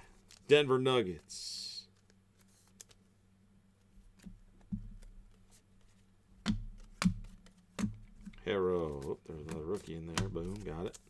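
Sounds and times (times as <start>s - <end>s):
low steady hum: 0.0s - 11.0s
cards tapping and clicking: 4.1s - 11.0s.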